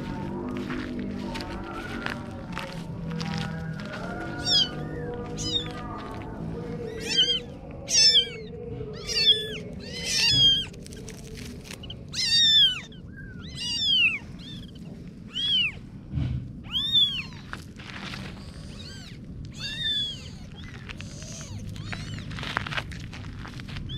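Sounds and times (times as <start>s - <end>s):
kitten meowing: 4.2s - 6.0s, 6.8s - 15.8s, 16.6s - 17.6s, 18.4s - 22.4s.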